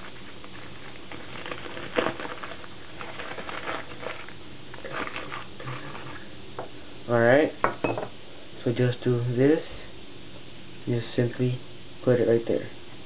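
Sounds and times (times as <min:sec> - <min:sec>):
filter paper crinkling: 0:00.0 - 0:06.2.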